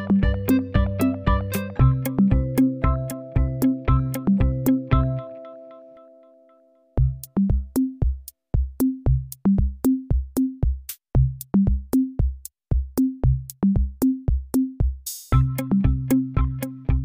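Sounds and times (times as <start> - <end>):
upbeat children's music: 0.0 - 6.0, 15.1 - 17.0.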